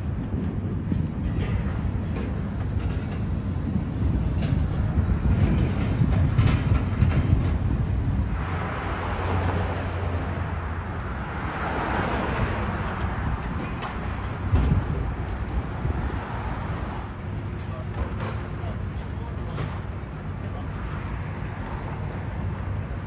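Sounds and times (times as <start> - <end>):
demolition site rumble: 0.0 - 23.0.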